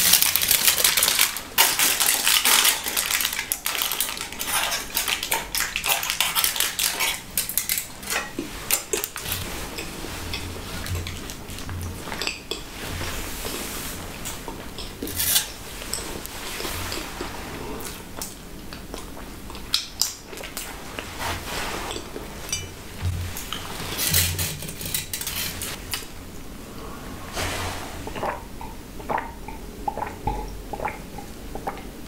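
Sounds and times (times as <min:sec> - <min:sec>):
aluminium foil crinkling: 0:00.0 - 0:12.2, 0:23.3 - 0:26.1.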